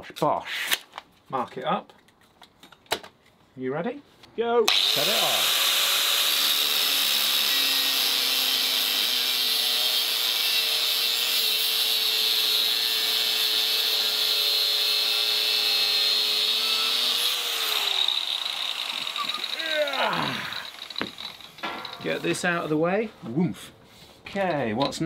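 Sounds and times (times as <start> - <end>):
grinder disc spinning down: 4.7 - 5.6, 15.9 - 22.7
angle grinder cutting steel: 4.7 - 22.8.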